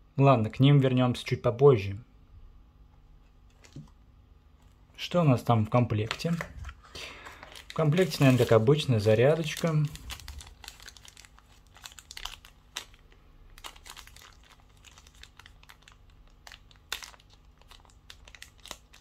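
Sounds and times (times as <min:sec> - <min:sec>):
packaging rustling and crinkling: 0:03.3 - 0:04.0, 0:06.0 - 0:19.0.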